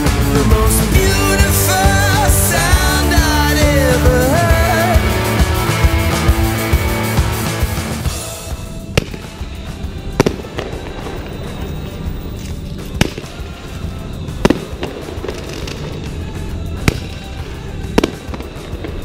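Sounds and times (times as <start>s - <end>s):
background music: 0.0s - 19.0s
distant fireworks bangs: 8.3s - 19.0s.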